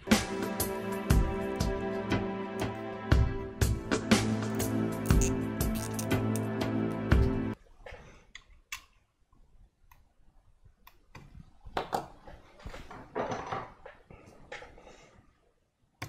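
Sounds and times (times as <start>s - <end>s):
zip tie clicking: 4.6s - 6.5s.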